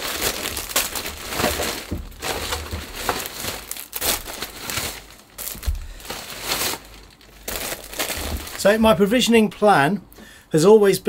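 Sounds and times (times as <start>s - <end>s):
plastic bags rustling: 0.0s - 9.5s.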